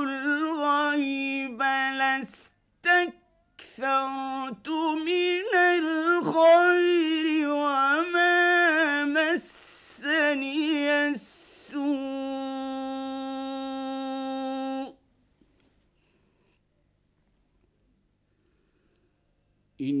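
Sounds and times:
man chanting recitation: 0:00.0 - 0:15.0, 0:19.8 - 0:20.0.

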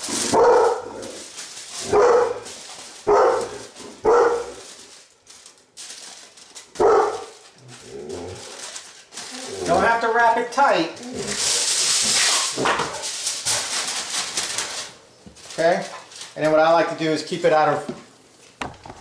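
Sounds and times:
foil crinkling: 0:00.0 - 0:17.8
dog barking: 0:00.3 - 0:00.9, 0:01.9 - 0:02.4, 0:03.1 - 0:04.6, 0:06.8 - 0:07.4.

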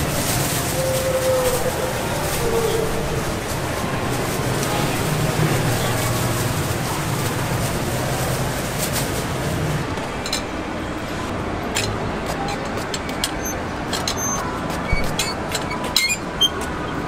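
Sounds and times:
busy market background noise: 0:00.0 - 0:17.0.

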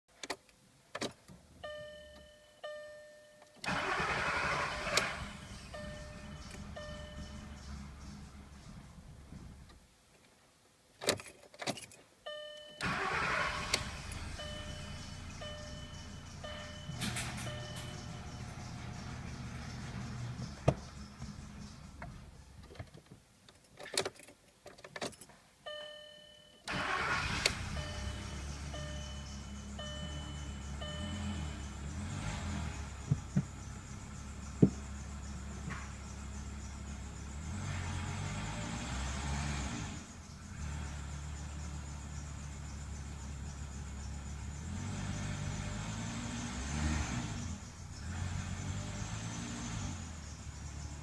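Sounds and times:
low hum of car electrics: 0:00.2 - 0:10.0, 0:11.0 - 0:23.1, 0:24.9 - 0:51.0
instrument cluster chimes: 0:01.6 - 0:03.5, 0:05.7 - 0:07.8, 0:14.4 - 0:18.8, 0:25.7 - 0:26.7, 0:27.8 - 0:31.9
starter motor cranking: 0:03.7 - 0:05.9.

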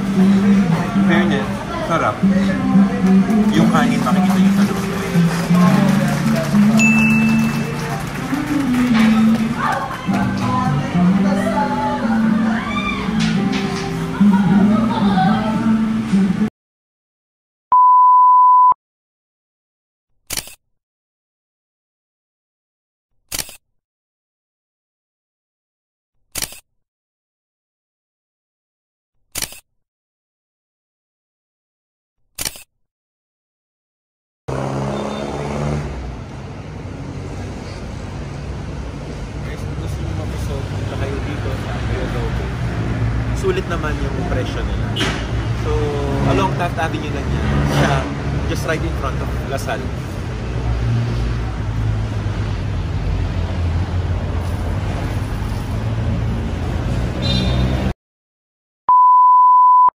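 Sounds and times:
city street noise: 0:00.0 - 0:16.5, 0:34.5 - 0:58.0
electronic beep: 0:17.7 - 0:18.8, 0:58.9 - 0:59.9.

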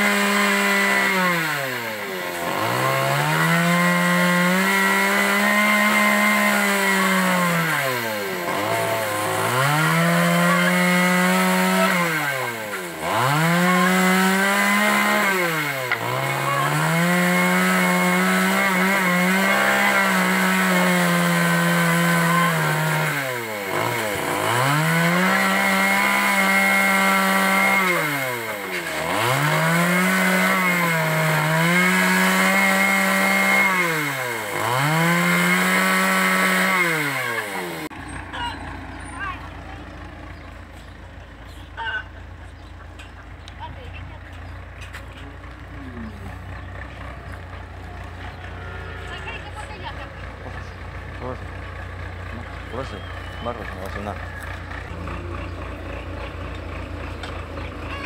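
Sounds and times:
chainsaw cutting wood: 0:00.0 - 0:38.2.

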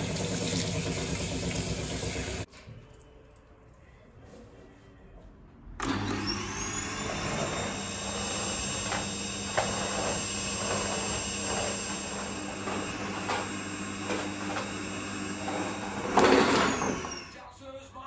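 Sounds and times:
vacuum cleaner motor whine: 0:05.8 - 0:17.4.

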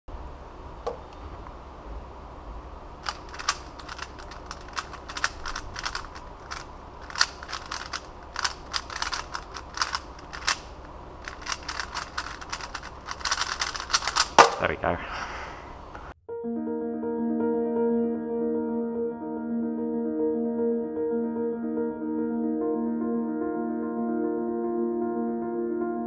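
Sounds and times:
puzzle cube plastic clicks: 0:03.0 - 0:14.6.

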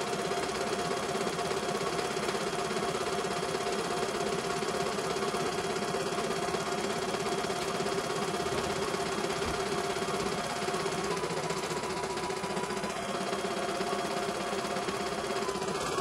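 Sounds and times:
embroidery machine stitching: 0:00.0 - 0:16.0
motor hum: 0:07.6 - 0:16.0.

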